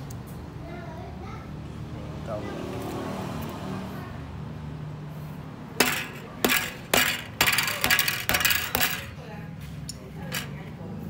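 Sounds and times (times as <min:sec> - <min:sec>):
metal sprockets clinking: 0:05.8 - 0:09.2, 0:09.9 - 0:10.6.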